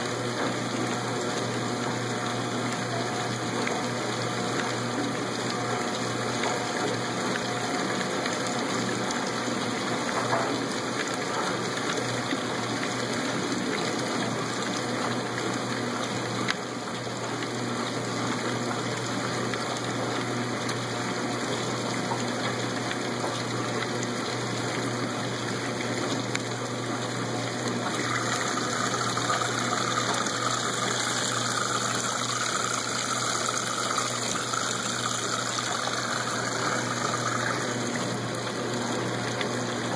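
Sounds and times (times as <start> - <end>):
washer motor hum: 0.0 - 39.9
water and clothes sloshing: 19.8 - 39.9.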